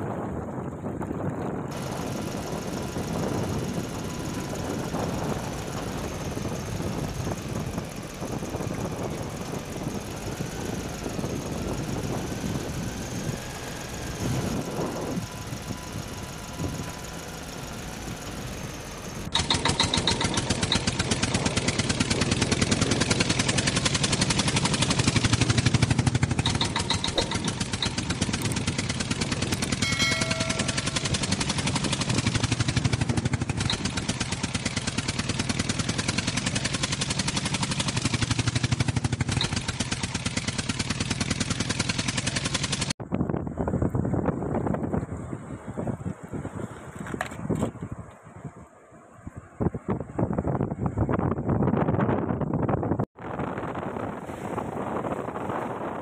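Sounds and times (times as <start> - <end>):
wind on microphone: 0.0 - 17.8, 18.9 - 36.5, 43.0 - 56.0
pulsing engine sound effect: 1.7 - 42.9
surf washing: 53.6 - 56.0.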